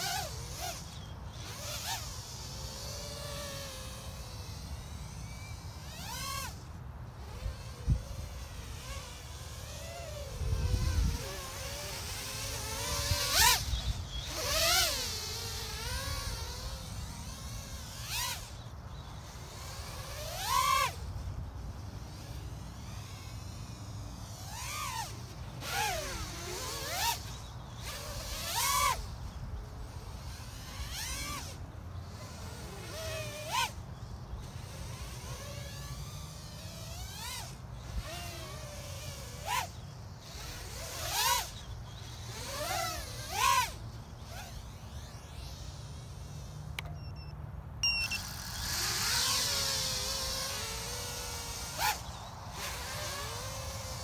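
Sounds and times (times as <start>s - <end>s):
drone motor whine: 0.0s - 54.0s
sharp click: 46.7s - 47.0s.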